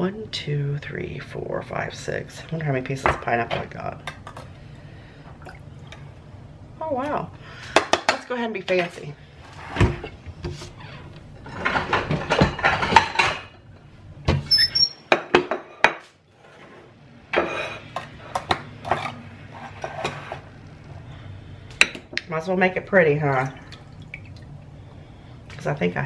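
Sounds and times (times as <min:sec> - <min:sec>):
short high squeak: 0:14.5 - 0:15.0.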